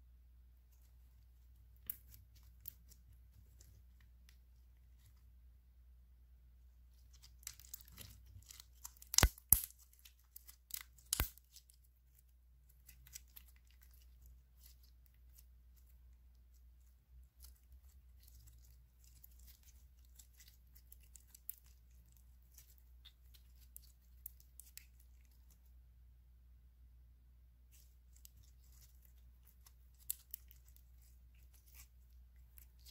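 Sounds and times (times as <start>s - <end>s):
slime crackling: 6.9s - 25.6s, 27.7s - 32.9s.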